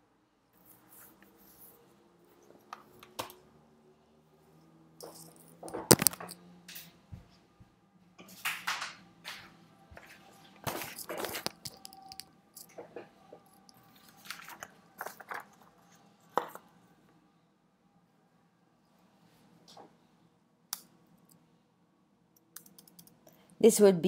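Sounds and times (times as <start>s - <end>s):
rustling and handling noises: 5.0s - 7.5s, 8.2s - 16.8s.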